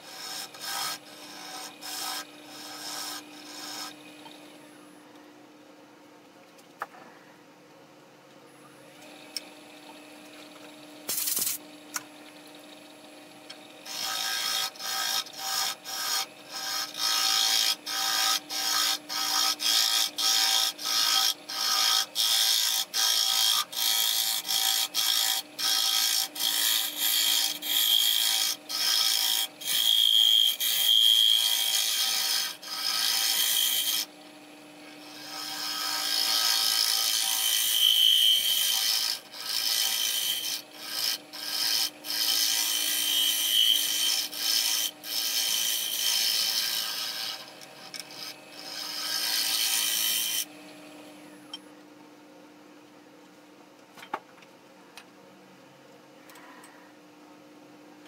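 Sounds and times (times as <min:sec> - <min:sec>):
lathe gouge cutting wood: 0:00.0 - 0:04.6, 0:09.1 - 0:50.5.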